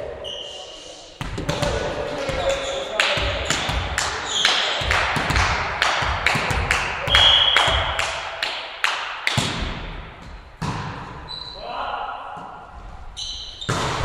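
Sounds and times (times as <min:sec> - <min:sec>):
volleyball slaps echoing: 0:01.2 - 0:11.3, 0:13.6 - 0:14.0
referee whistle blast: 0:07.1 - 0:07.8.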